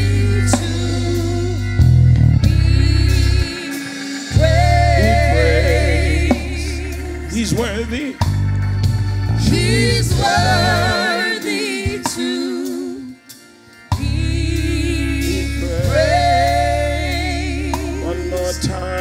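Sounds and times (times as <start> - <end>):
person singing with vibrato: 0.0 - 8.2, 9.4 - 19.0
band with strong bass: 0.0 - 19.0.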